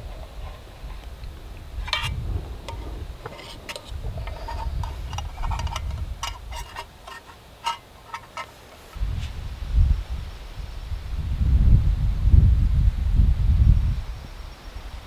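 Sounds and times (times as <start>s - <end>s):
wind rumble on microphone: 0.0s - 7.2s, 8.1s - 15.0s
metal cup clicking and clinking: 1.8s - 9.0s.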